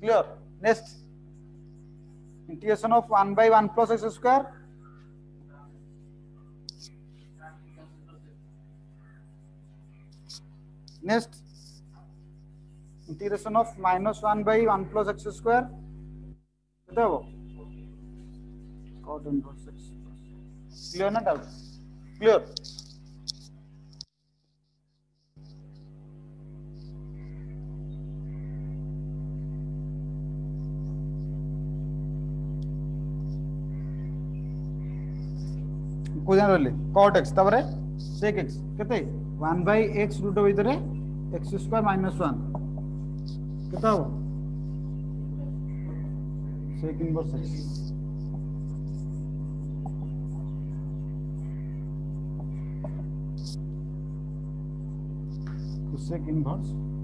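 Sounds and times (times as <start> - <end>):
electrical hum: 0.0 - 57.0
marker scratching on whiteboard: 10.1 - 13.2.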